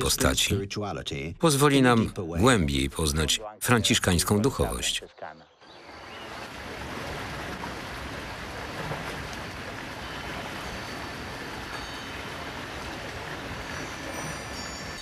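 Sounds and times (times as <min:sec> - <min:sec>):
stream water rushing: 0:05.7 - 0:15.0.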